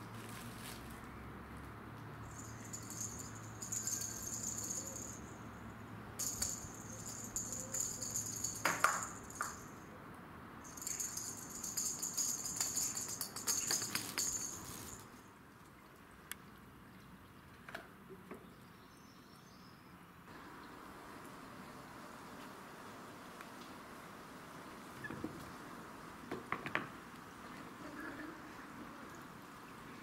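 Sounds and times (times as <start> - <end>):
small bell jingling: 2.2 - 5.5, 6.2 - 9.9, 10.6 - 15.2.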